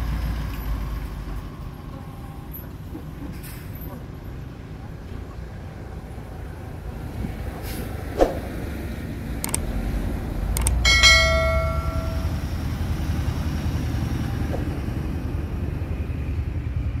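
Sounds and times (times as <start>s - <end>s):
diesel engine rumble: 0.0s - 17.0s
short swoosh: 8.2s - 8.5s
mouse clicks: 9.4s - 9.6s
bell ding: 10.6s - 12.6s.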